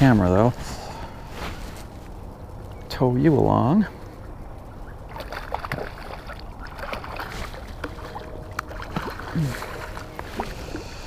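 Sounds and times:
water lapping: 5.0 - 11.0.

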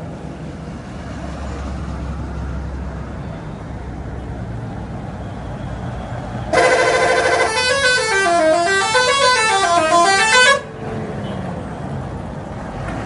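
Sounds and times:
engine and road noise: 0.0 - 13.0
bus horn playing melody: 6.5 - 10.8.

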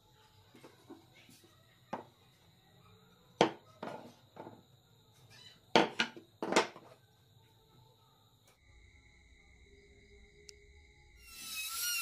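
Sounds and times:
wood knocking on workbench: 3.4 - 4.6, 5.8 - 6.9.

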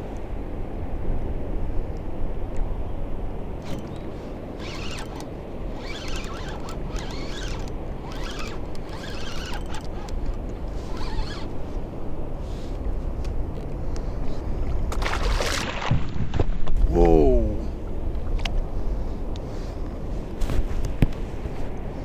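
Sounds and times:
low rumble of wind and water: 0.0 - 22.0
fishing reel cranking: 3.6 - 4.0, 4.6 - 11.5.

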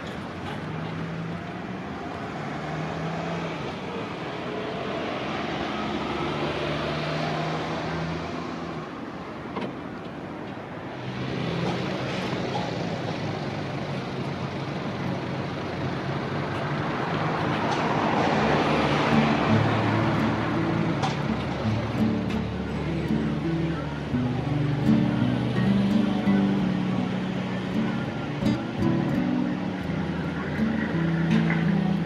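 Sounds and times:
road vehicle rushing: 0.0 - 32.0
low engine hum: 11.0 - 32.0.

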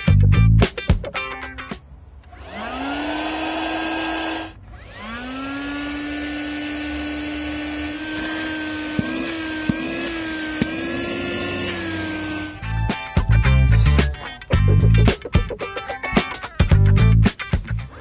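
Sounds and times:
vacuum motor whining: 2.2 - 12.7.

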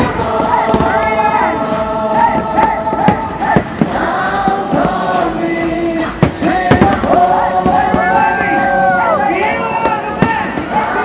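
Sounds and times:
choir singing sustained notes: 0.0 - 11.0
firework bangs: 6.0 - 8.6.

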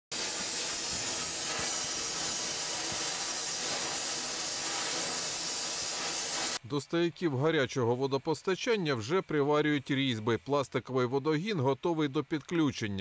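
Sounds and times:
welding crackling: 0.0 - 6.6
welding hiss: 0.0 - 6.6.

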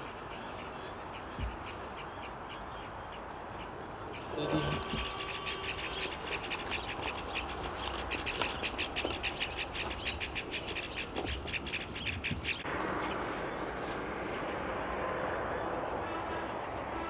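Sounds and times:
bird chattering call: 0.0 - 13.2.

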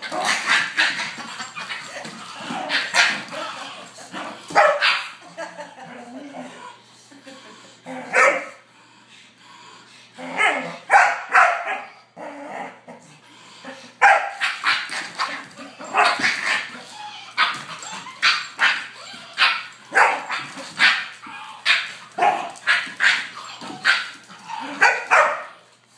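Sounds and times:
dogs barking: 0.0 - 3.5, 4.4 - 5.7, 10.4 - 12.0, 14.0 - 25.6.

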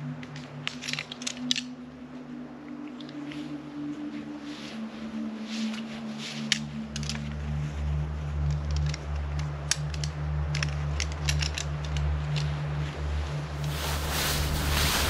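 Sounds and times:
low steady hum: 0.0 - 15.0
sharp clicks and crackles: 0.2 - 1.8, 8.3 - 12.7.

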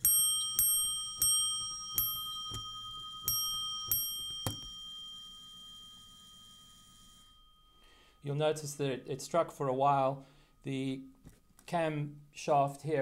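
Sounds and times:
hammer striking bell: 0.0 - 9.0.

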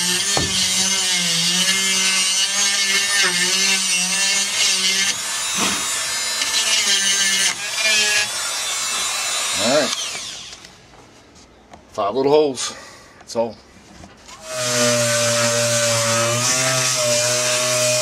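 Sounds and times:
power tool motor whine: 5.1 - 10.7.

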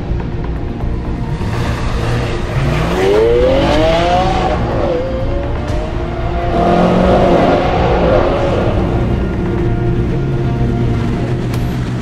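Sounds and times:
cinematic background music: 0.0 - 12.0
sports car engine revving: 1.2 - 11.5.

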